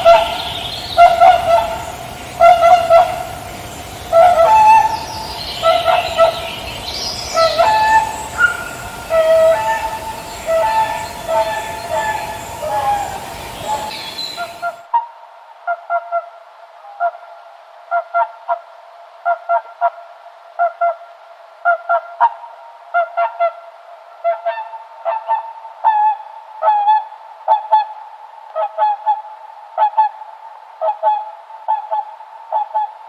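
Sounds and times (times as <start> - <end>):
waterfowl honking: 0.0 - 15.0.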